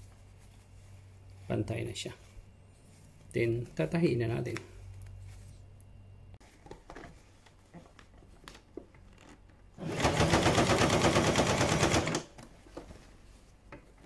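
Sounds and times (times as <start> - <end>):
sewing machine stitching: 9.8 - 12.3.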